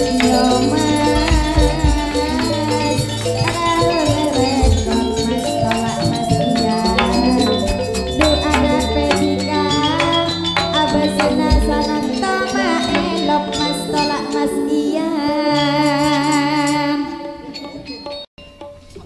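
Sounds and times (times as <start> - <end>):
deep drum strokes: 0.0 - 13.9
gamelan ensemble playing: 0.0 - 19.0
rattling percussion: 0.0 - 19.0.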